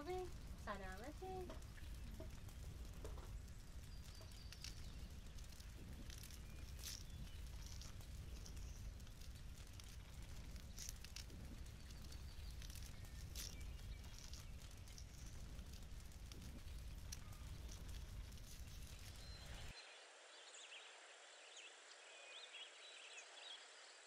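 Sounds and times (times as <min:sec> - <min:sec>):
faint low rumble: 0:00.0 - 0:19.8.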